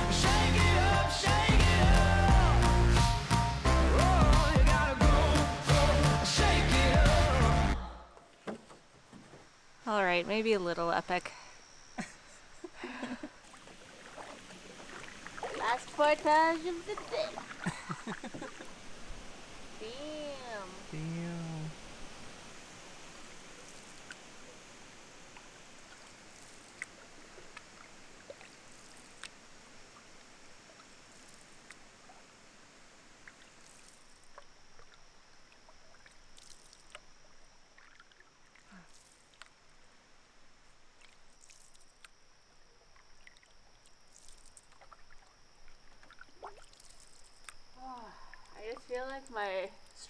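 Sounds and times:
faint hiss: 8.0 - 35.4
water dripping: 13.0 - 18.8, 33.2 - 39.7, 40.8 - 50.0
paddle strokes in water: 13.4 - 19.6, 23.0 - 39.6, 42.8 - 47.5.

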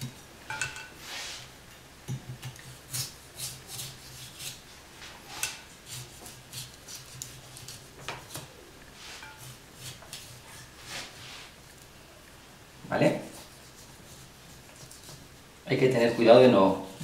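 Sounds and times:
knife scraping ham rind: 2.1 - 4.7, 5.3 - 11.3, 13.2 - 17.0.

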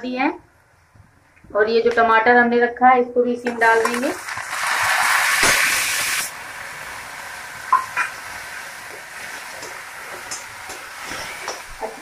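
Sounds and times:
vegetables sizzling in hot oil: 3.6 - 12.0.

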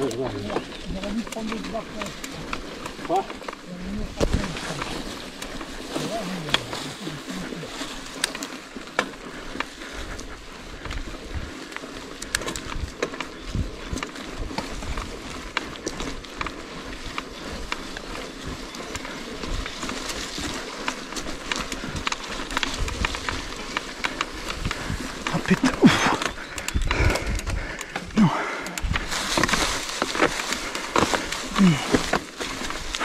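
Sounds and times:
bike rattling and clicking: 0.0 - 33.0
tyres rustling on trail: 0.0 - 33.0
wind buffeting microphone: 9.3 - 33.0.

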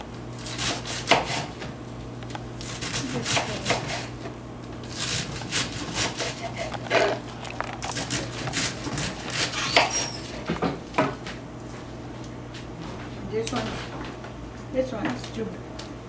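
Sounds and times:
low steady hum: 0.0 - 16.0
knife cutting cabbage: 0.4 - 1.5, 2.6 - 4.1, 4.9 - 10.5.

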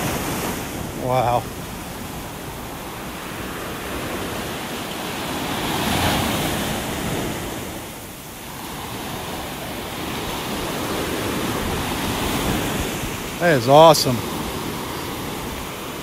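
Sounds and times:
heavy surf breaking on beach: 0.0 - 16.0.

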